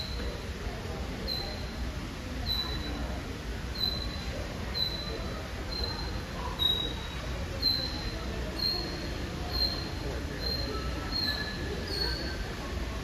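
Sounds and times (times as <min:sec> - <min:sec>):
small bird chirping: 0:01.3 - 0:01.7, 0:02.5 - 0:03.0, 0:03.8 - 0:12.4.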